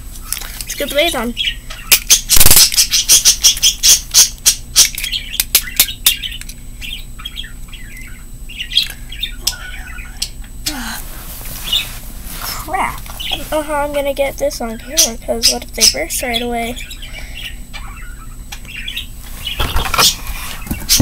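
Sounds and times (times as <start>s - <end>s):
soft rustle of movement: 11.1s - 13.8s.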